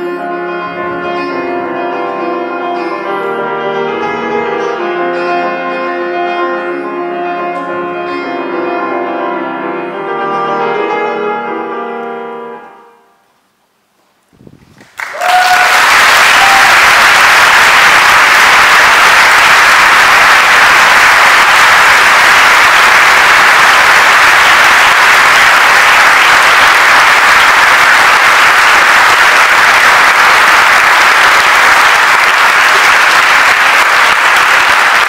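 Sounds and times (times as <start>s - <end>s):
audience applauding: 14.7s - 35.0s.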